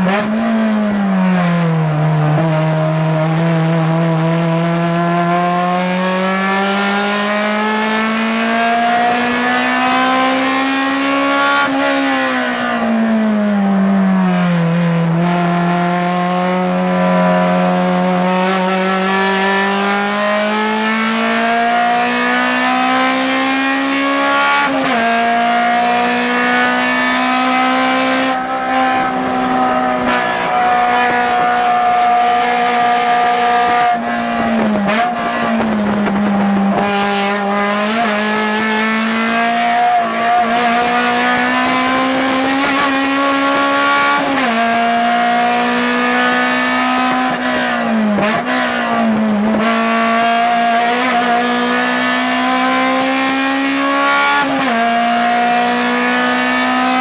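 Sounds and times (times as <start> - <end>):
car engine revving from cabin: 14.3 - 57.0.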